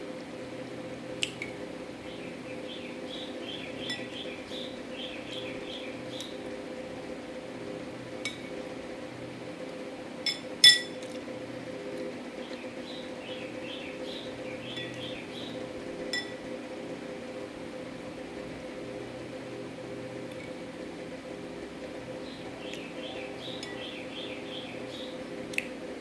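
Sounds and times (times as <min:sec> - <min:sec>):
spoon clinking on ceramic bowl: 0:10.3 - 0:11.0.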